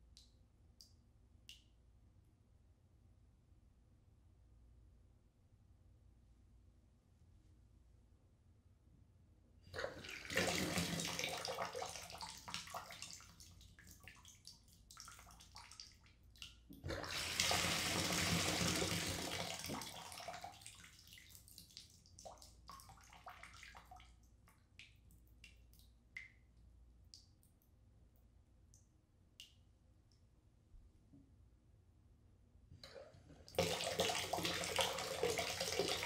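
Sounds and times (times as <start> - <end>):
water rushing from bathtub spout: 9.7 - 14.2, 16.7 - 21.3, 32.8 - 36.0
water dripping and trickling: 11.2 - 16.9, 19.4 - 26.5.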